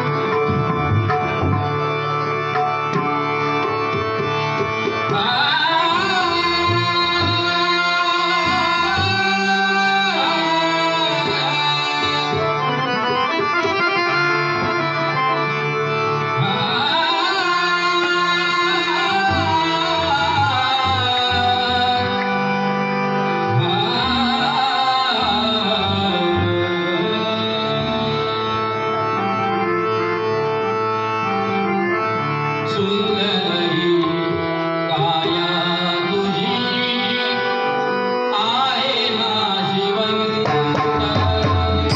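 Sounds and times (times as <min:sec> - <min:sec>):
tabla and drum: 0:00.0 - 0:29.6, 0:32.6 - 0:37.4, 0:38.3 - 0:41.9
harmonium held notes: 0:00.0 - 0:41.9
man singing: 0:05.0 - 0:15.5, 0:16.2 - 0:22.5, 0:23.3 - 0:29.6, 0:32.6 - 0:41.9
hand drums playing: 0:40.4 - 0:41.9.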